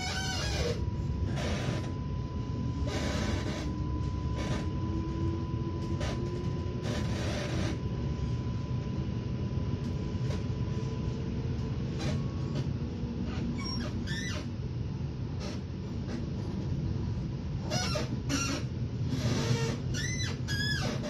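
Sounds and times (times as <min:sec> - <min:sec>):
thin steady whine: 0:00.0 - 0:21.0
train wheels rumbling on track: 0:15.3 - 0:19.9.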